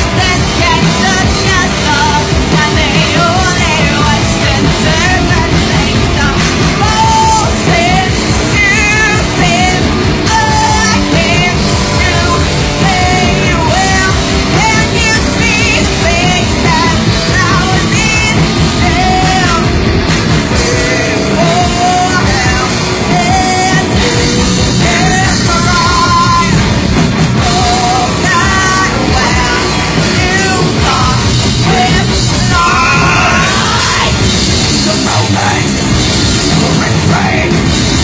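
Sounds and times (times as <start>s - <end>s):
person singing: 0.0s - 26.8s, 27.4s - 38.0s
bass guitar: 0.0s - 38.0s
distorted electric guitars: 0.0s - 38.0s
drums: 0.0s - 38.0s.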